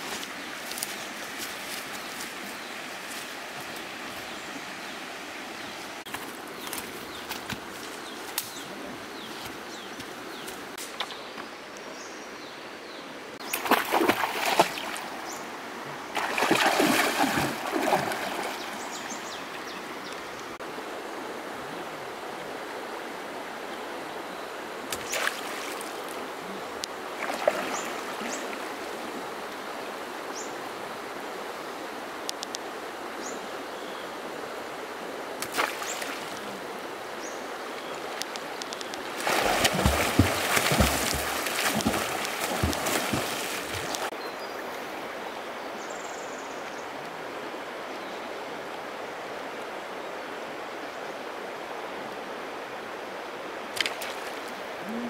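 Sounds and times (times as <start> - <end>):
river water running: 0.0 - 55.0
water splashing: 13.4 - 15.4, 16.1 - 20.2, 24.9 - 26.2, 27.0 - 29.2, 35.4 - 36.6, 38.2 - 44.2.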